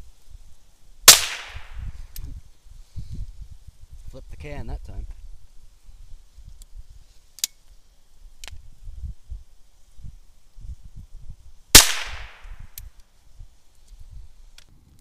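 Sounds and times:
rifle shot: 0:01.1 - 0:01.8, 0:11.8 - 0:12.6.

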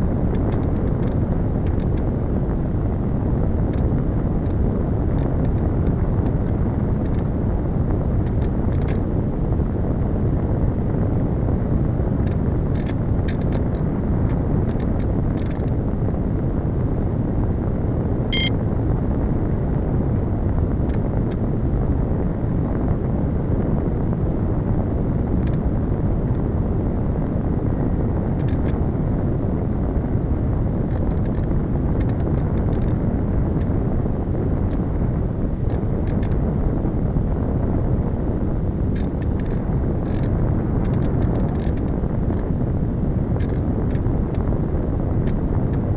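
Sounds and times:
faint crackles: 0:00.0 - 0:16.2, 0:23.8 - 0:45.9
wind rushing past camera: 0:00.0 - 0:45.9.

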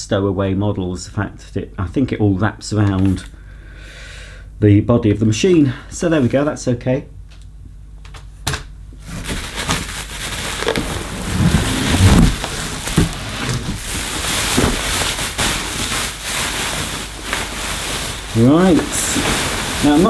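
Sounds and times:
bubble wrap crackling and rustling: 0:09.0 - 0:20.0.

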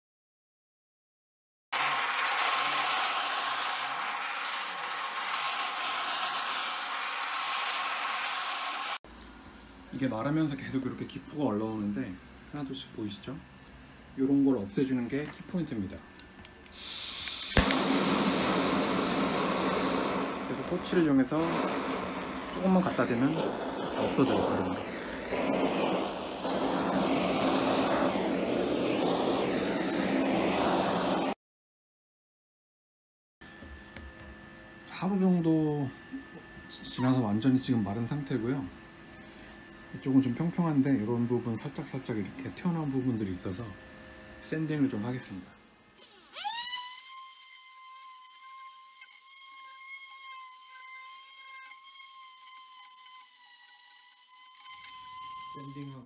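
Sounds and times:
gas torch flame hissing: 0:01.8 - 0:09.0, 0:16.7 - 0:31.4, 0:36.8 - 0:37.8, 0:46.0 - 0:56.0
electric sander whining: 0:17.6 - 0:30.5.

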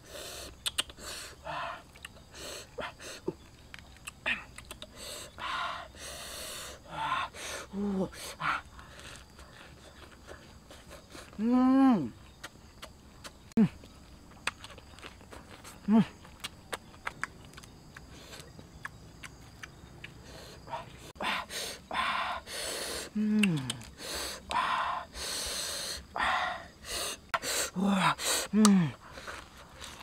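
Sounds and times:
soft chewing clicks: 0:00.6 - 0:01.0, 0:01.9 - 0:02.2, 0:03.4 - 0:05.0, 0:12.4 - 0:20.2, 0:23.4 - 0:23.9
low grunts: 0:27.8 - 0:29.0
lettuce leaves crinkling: 0:29.0 - 0:30.0.

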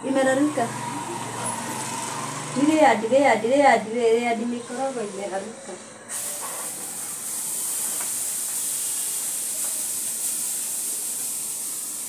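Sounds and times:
food sizzling in pan: 0:06.1 - 0:12.0.

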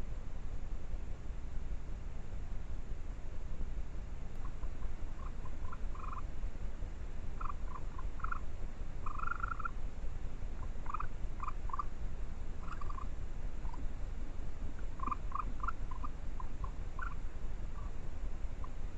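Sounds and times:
steady low rumble: 0:00.0 - 0:18.9
small animal trilling calls: 0:04.4 - 0:06.3, 0:07.4 - 0:09.8, 0:10.5 - 0:13.9, 0:14.6 - 0:18.9.

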